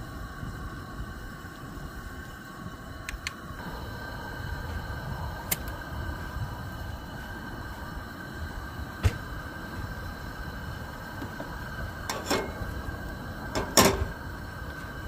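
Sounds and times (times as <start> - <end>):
gas camp stove burning: 0.0 - 15.0
cookware clicking: 12.1 - 12.6, 13.6 - 14.2.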